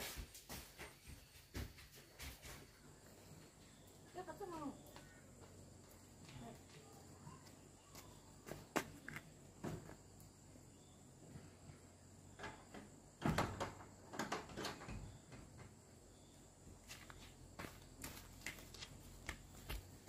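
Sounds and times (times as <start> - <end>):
wooden door knocks and rattles: 12.4 - 15.8.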